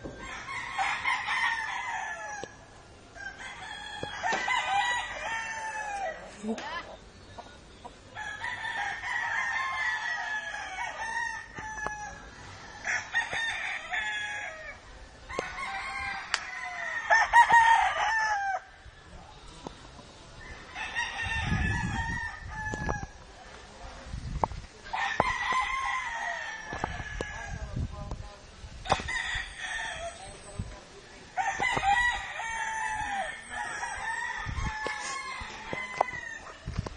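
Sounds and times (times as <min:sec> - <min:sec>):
roosters crowing: 0:00.0 - 0:06.9, 0:07.8 - 0:19.0, 0:20.3 - 0:23.3, 0:24.8 - 0:27.8, 0:28.8 - 0:36.8.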